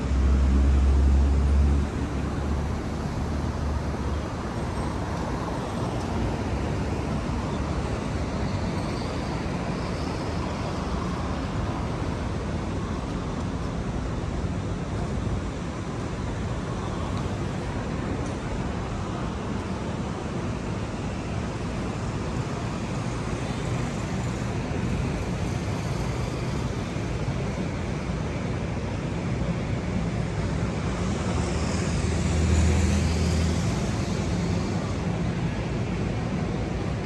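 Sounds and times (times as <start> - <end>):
passing cars: 0.0 - 37.0.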